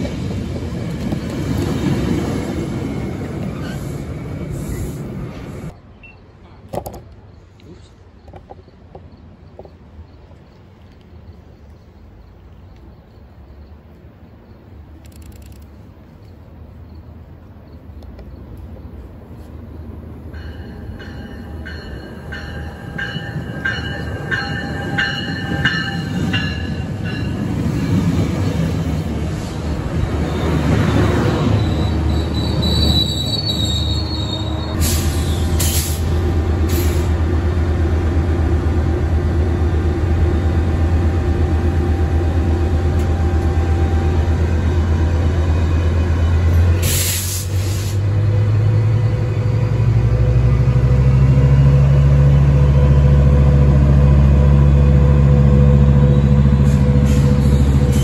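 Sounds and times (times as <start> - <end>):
wheels squealing: 27.7 - 36.1
air hisses: 46.8 - 48.0.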